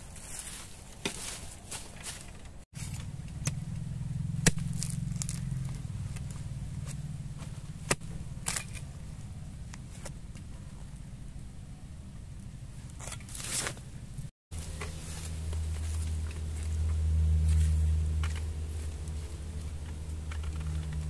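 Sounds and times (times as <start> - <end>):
low steady hum: 0.0 - 21.0
blade chopping into soil: 4.4 - 5.8, 7.8 - 8.9.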